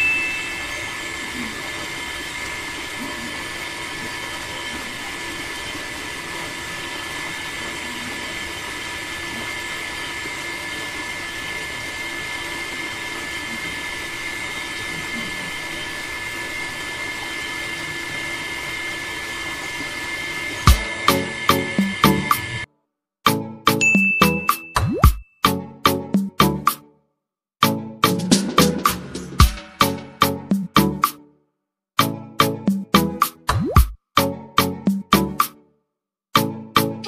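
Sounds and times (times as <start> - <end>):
water pump motor whining: 0.0 - 22.7.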